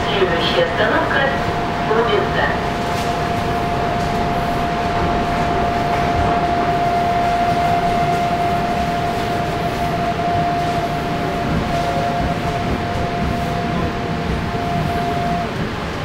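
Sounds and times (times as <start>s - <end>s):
high-pitched train whine: 0.0s - 16.0s
train rumbling: 0.0s - 16.0s.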